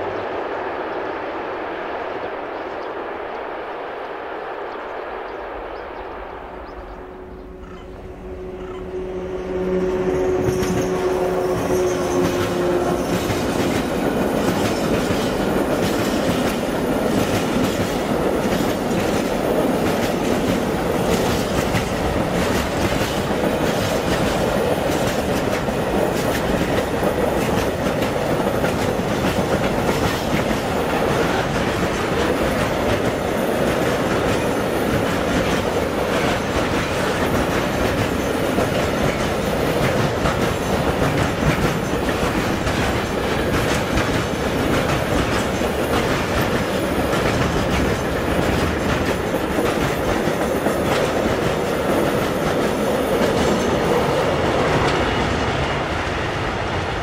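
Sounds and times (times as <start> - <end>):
train wheels rumbling on rails: 6.4 - 57.0
wheels clicking over rail joints: 10.5 - 55.3.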